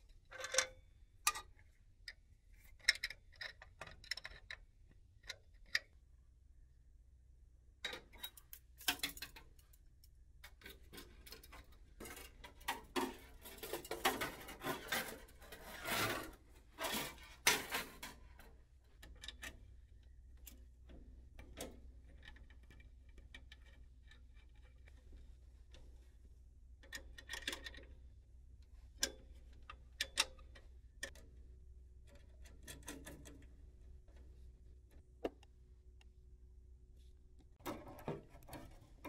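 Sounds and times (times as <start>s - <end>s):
hand tools and metal parts clattering: 7.9s - 9.8s, 10.4s - 19.6s, 37.6s - 39.0s.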